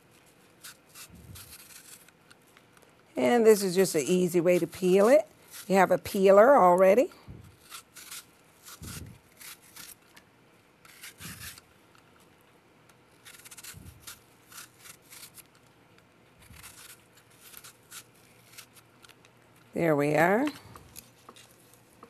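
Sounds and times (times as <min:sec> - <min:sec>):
peeler scraping apple skin: 0:00.5 - 0:02.3, 0:03.2 - 0:06.9, 0:07.5 - 0:10.2, 0:10.8 - 0:12.1, 0:13.2 - 0:15.7, 0:16.4 - 0:19.3.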